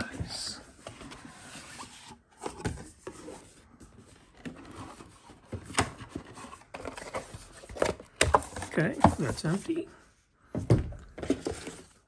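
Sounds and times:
cardboard sliding and rubbing: 0:00.8 - 0:03.7.

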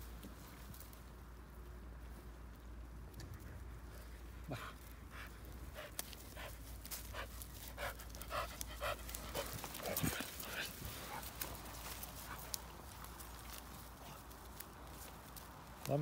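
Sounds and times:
dog panting: 0:04.5 - 0:13.3.

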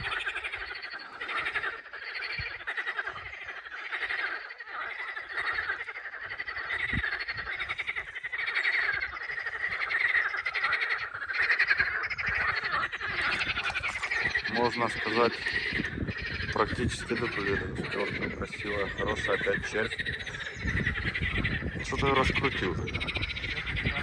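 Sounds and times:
frogs croaking: 0:00.0 - 0:24.0.

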